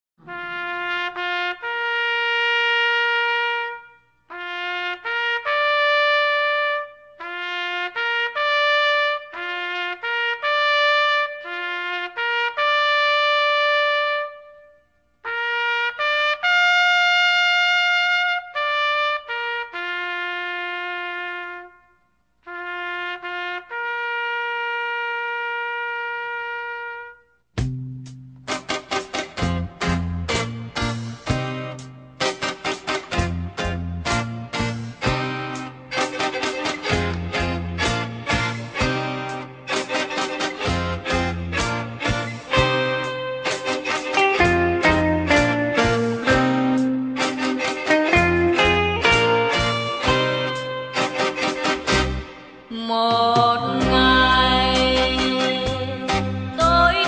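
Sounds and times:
solo trumpet bugle-style call: 0.2 - 27.4, 35.0 - 52.5.

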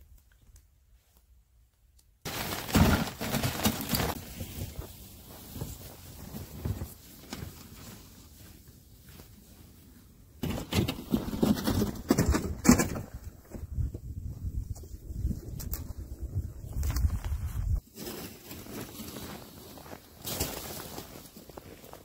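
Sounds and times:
footsteps crunching on snow: 2.5 - 9.5, 14.2 - 22.0.

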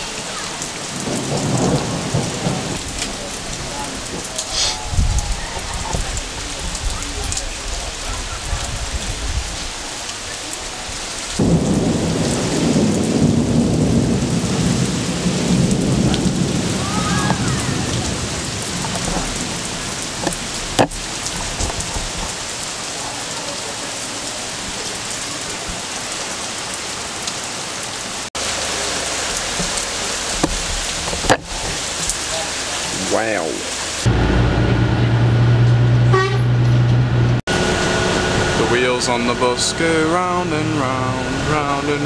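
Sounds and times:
heavy rain falling: 0.0 - 35.9, 37.2 - 42.0
thunder rolling: 0.1 - 9.7, 11.4 - 22.4.

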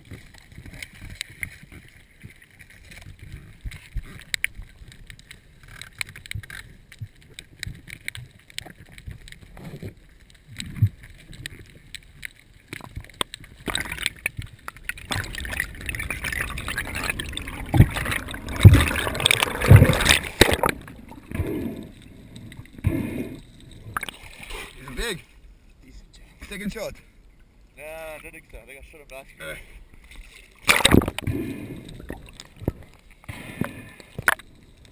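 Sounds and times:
underwater clicks and ticks: 0.0 - 25.1, 29.9 - 34.9
rush of moving water: 11.0 - 25.1, 30.1 - 34.4.

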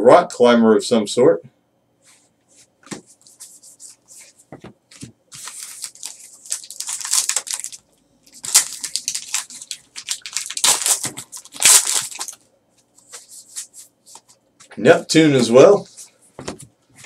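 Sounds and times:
wrapper crinkling: 5.3 - 12.4.

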